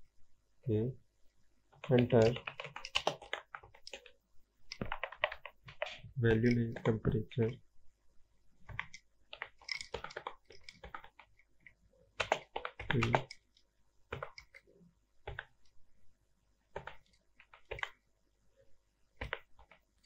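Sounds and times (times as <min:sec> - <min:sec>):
computer keyboard typing: 0:01.8 - 0:07.0, 0:08.7 - 0:14.6, 0:15.2 - 0:15.7, 0:16.7 - 0:18.0, 0:19.2 - 0:19.8.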